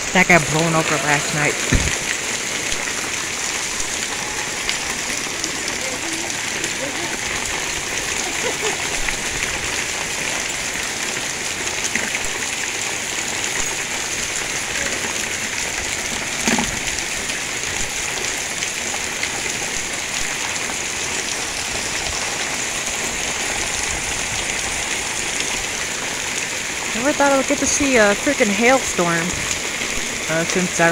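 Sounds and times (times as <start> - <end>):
hail and rain pattering: 0.0 - 30.9
loud knock: 1.7 - 2.0.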